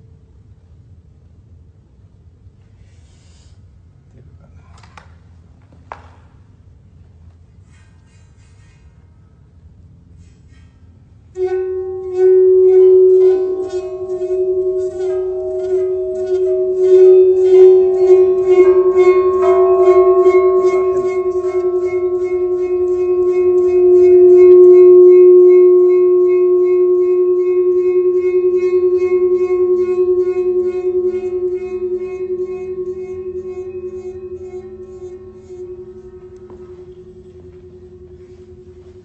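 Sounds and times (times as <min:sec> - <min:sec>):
metal plate singing tone: 0:11.3 - 0:39.0
rubbing pulse on metal rim: 0:11.4 - 0:39.0.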